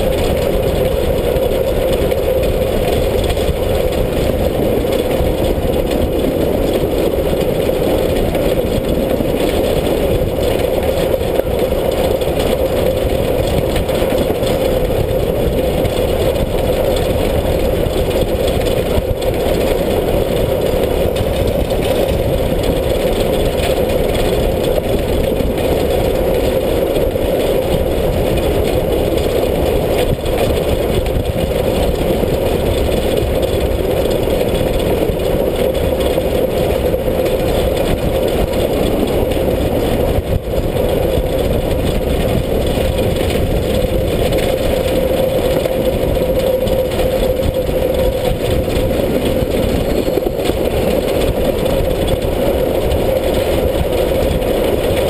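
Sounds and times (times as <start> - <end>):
steam locomotive running noise: 0.0 - 55.0.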